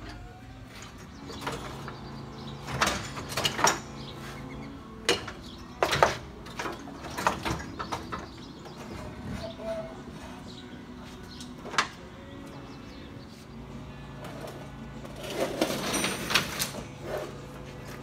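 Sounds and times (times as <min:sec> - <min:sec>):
knocks and clunks of metal and plastic: 0:02.6 - 0:04.0, 0:05.0 - 0:09.4.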